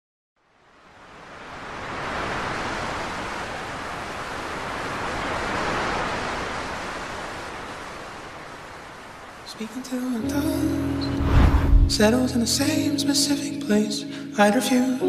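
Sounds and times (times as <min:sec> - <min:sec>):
waves breaking on shore: 0:00.7 - 0:12.0.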